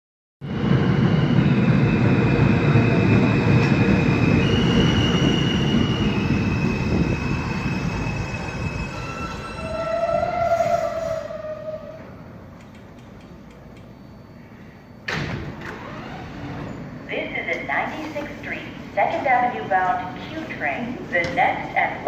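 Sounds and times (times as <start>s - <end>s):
subway train wheels rumbling on rail: 0.4s - 22.0s
train brakes squealing: 0.5s - 12.2s.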